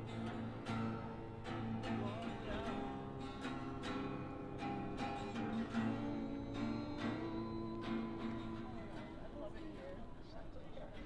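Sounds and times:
acoustic guitar strumming chords: 0.0s - 9.7s.

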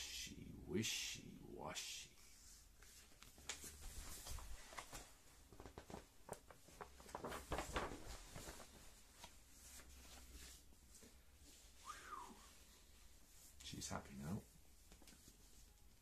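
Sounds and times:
paper book pages rustling: 2.8s - 11.7s.

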